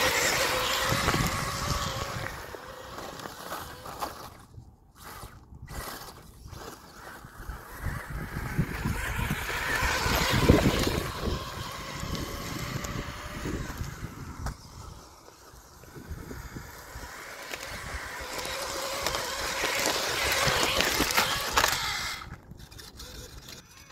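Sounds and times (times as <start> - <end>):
rc car driving over rocks: 0.0 - 23.9.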